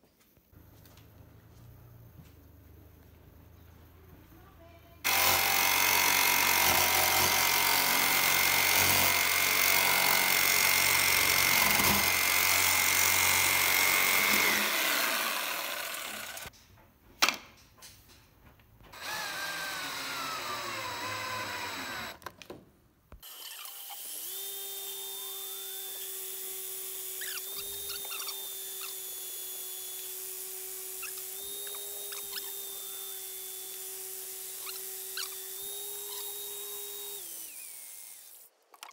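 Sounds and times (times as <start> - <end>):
electric drill running: 5.0 - 16.5, 19.0 - 22.2, 23.2 - 38.5
jigsaw cutting plastic pipe: 5.1 - 16.5, 19.0 - 22.3, 23.1 - 38.9.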